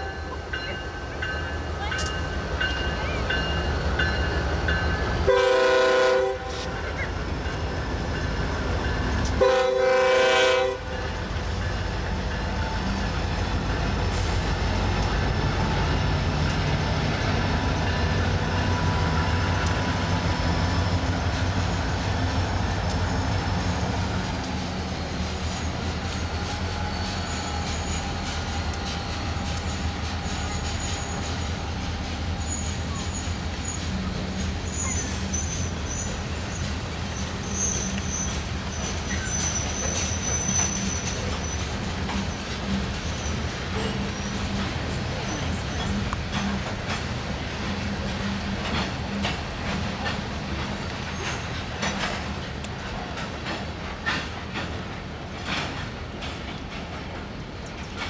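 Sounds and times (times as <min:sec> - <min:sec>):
diesel locomotive engine rumble: 0:00.0 - 0:58.0
train wheels rumbling on rails: 0:00.0 - 0:58.0
train air horn blasts: 0:05.2 - 0:06.8, 0:09.4 - 0:11.1.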